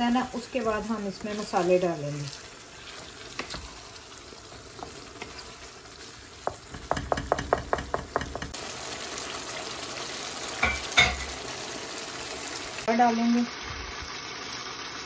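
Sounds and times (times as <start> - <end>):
chicken sizzling in a pan: 0.0 - 15.0
knocks on pan: 6.4 - 8.6
utensil tapping against pan: 6.4 - 8.6.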